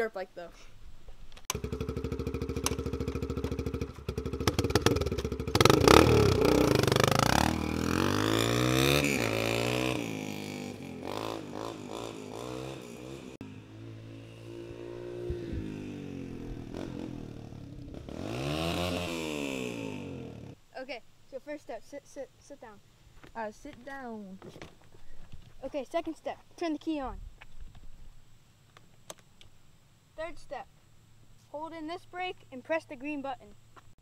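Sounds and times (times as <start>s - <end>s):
dirt bike engine revving: 1.5s - 20.6s.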